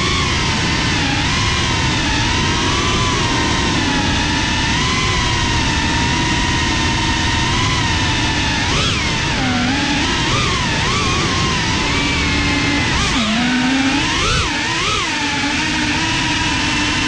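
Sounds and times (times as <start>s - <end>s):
low rumble: 0.0s - 13.7s
quadcopter propellers whining: 0.0s - 17.0s.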